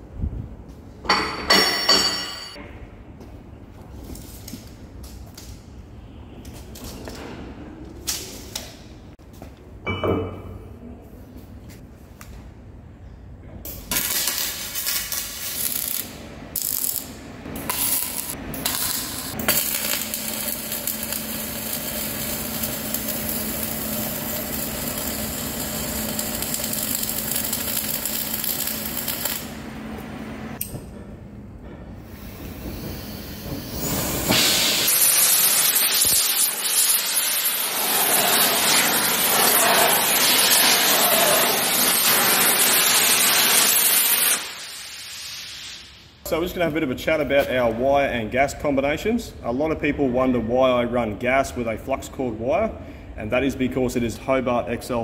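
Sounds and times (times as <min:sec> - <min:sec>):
machine humming: 0:15.7 - 0:30.6
loud even hiss: 0:32.1 - 0:46.3.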